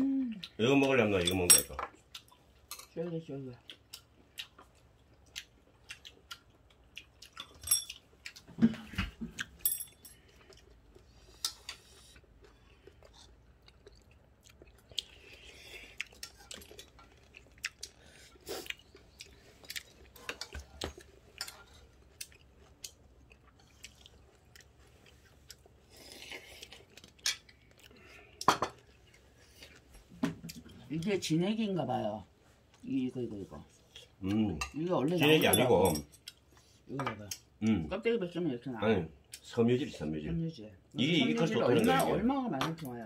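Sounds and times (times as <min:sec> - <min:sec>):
people chewing noodles: 0:00.0 - 0:01.3, 0:01.9 - 0:02.7, 0:03.3 - 0:31.1
utensils clinking against bowl: 0:07.4 - 0:08.0.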